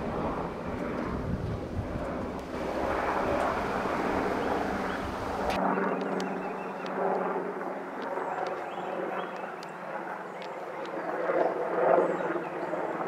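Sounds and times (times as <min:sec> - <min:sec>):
wind buffeting microphone: 0:00.0 - 0:09.2
helicopter rotor and engine: 0:00.0 - 0:13.0.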